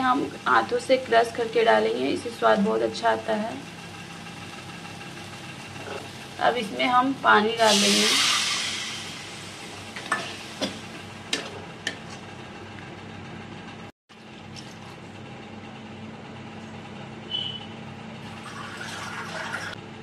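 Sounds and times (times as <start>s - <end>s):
water sizzling in hot pan: 3.8s - 11.4s.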